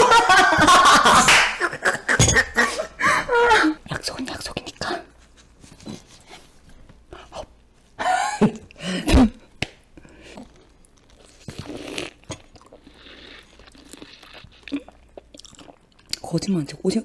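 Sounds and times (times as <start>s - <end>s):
wet mouth sucking sounds: 10.2s - 15.8s.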